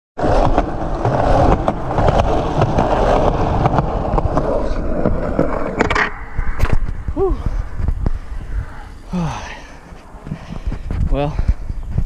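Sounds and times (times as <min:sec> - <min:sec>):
skateboard wheels clacking on joints: 0:00.2 - 0:12.0
skateboard wheels rolling on concrete: 0:00.2 - 0:12.0.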